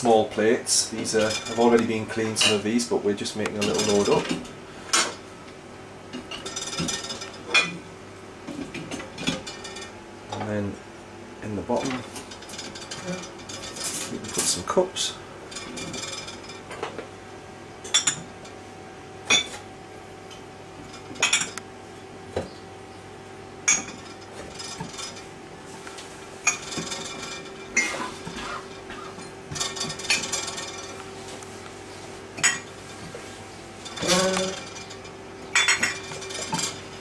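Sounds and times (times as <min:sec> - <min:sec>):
mugs clinking into dishwasher rack: 0:03.6 - 0:04.4, 0:17.9 - 0:18.3, 0:21.2 - 0:21.6, 0:23.7 - 0:25.2, 0:32.4 - 0:32.7, 0:33.8 - 0:36.9.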